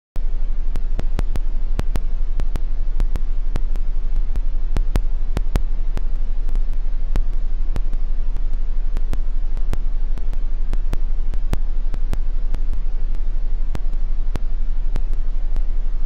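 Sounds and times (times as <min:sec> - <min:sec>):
crackling clicks: 0:00.2 - 0:16.0
low hum: 0:00.2 - 0:16.0.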